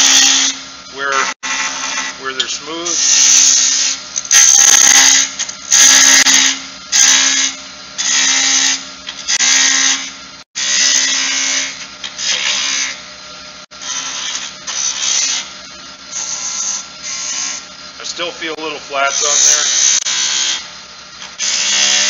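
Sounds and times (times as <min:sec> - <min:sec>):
wood lathe humming: 0:00.0 - 0:22.0
gouge cutting wood: 0:01.2 - 0:02.3, 0:02.9 - 0:13.0, 0:13.8 - 0:17.6, 0:19.1 - 0:20.7, 0:21.3 - 0:22.0.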